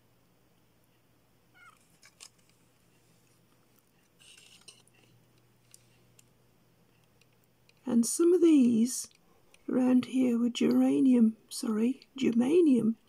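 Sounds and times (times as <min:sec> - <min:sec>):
circuit board rustling in fingers: 0:01.6 - 0:07.8.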